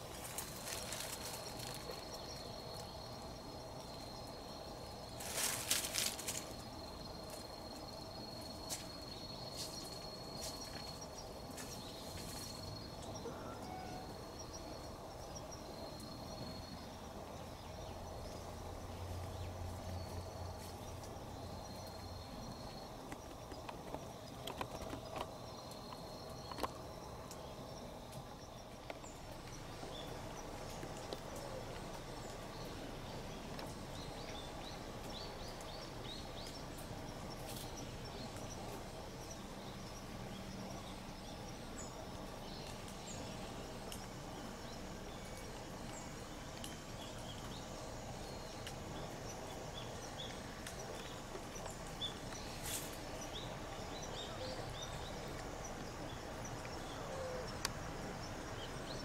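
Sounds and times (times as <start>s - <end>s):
rustling: 0.0s - 2.9s, 5.1s - 7.5s.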